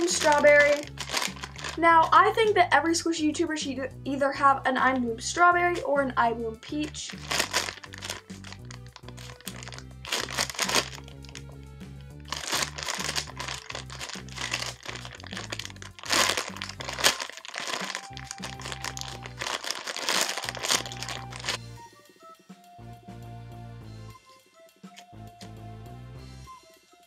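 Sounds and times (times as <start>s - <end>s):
plastic packaging crinkling: 0.0s - 2.2s, 6.8s - 11.4s, 12.3s - 21.6s
background music: 0.0s - 27.0s.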